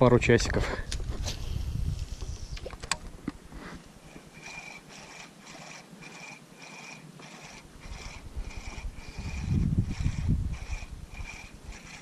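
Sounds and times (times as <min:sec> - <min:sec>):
fishing reel whirring: 0:04.1 - 0:12.0
sharp reel clicks: 0:04.3 - 0:12.0.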